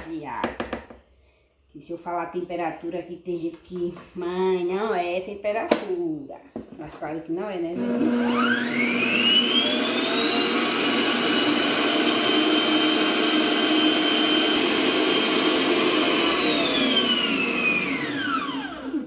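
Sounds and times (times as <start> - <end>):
stand mixer motor whining: 7.8 - 19.0.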